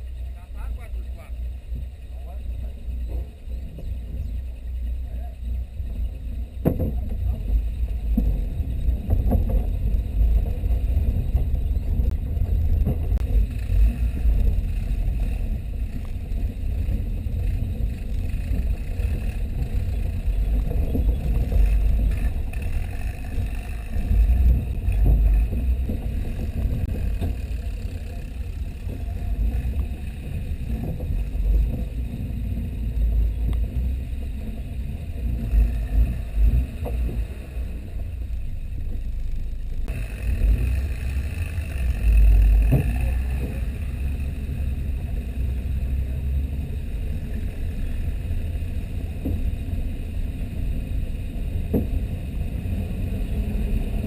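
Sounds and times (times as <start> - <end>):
vehicle driving on dirt trail: 0.0 - 54.0
vehicle jolting over bumps: 1.5 - 39.2.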